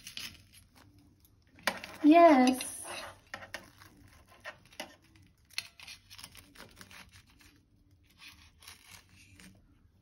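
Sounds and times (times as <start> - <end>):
knife sawing through crisp bread: 5.7 - 9.6.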